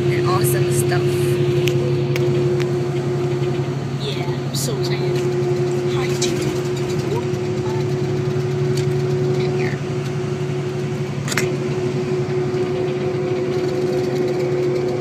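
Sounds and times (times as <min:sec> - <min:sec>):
coach engine and road drone: 0:00.0 - 0:15.0.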